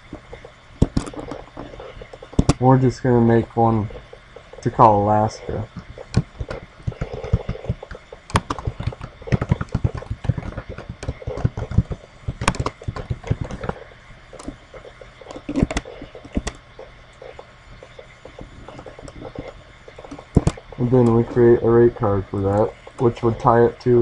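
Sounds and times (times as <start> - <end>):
keyboard typing: 6.1 - 13.8.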